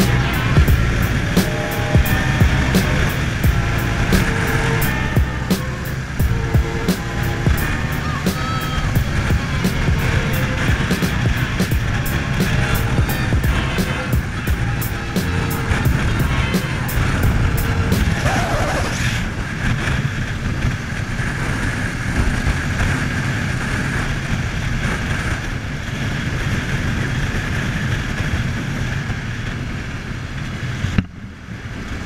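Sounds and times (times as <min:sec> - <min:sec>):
motorcycle engine running: 0:00.0 - 0:18.8
wind rushing over microphone: 0:00.0 - 0:32.0.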